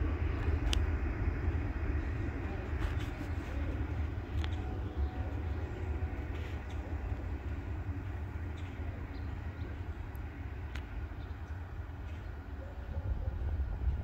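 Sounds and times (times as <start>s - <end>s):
distant train rumble: 0.0s - 14.0s
faint clicks: 10.1s - 12.3s.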